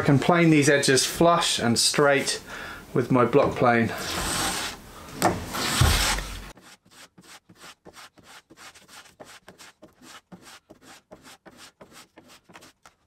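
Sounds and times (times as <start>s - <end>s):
block plane scraping wood: 4.0s - 4.8s, 5.4s - 13.0s.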